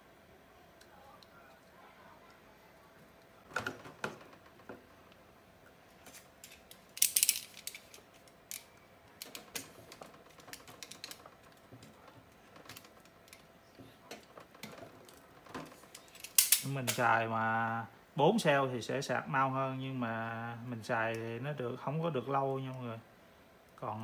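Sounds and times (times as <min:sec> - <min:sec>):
battery cells clicking and rustling: 0:06.0 - 0:17.0.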